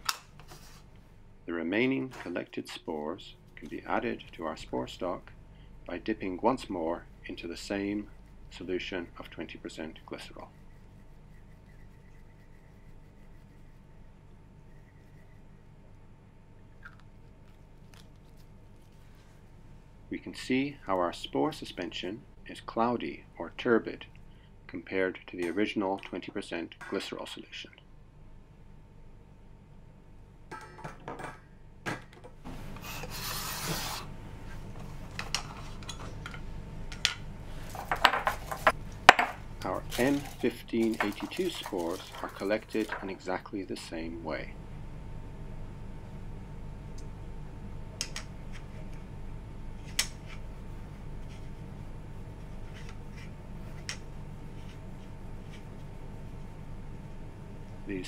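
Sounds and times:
steady low hum: 0.0 - 30.8, 31.4 - 58.0
cotton bud scratching agar: 6.2 - 15.6
petri dish rubbing across bench: 32.8 - 34.1.

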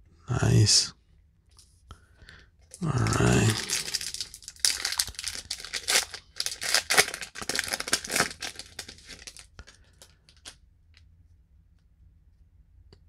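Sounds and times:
wrapper crinkling and tearing: 2.8 - 10.6.

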